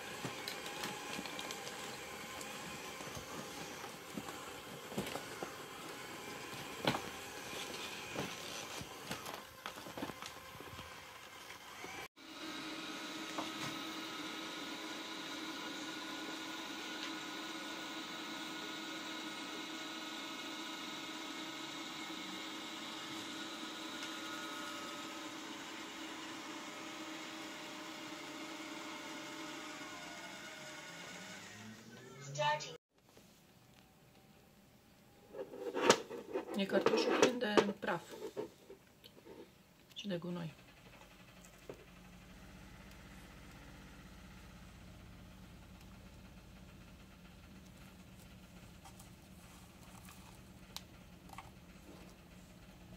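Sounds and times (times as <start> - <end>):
robot vacuum motor hum: 0.0 - 32.2.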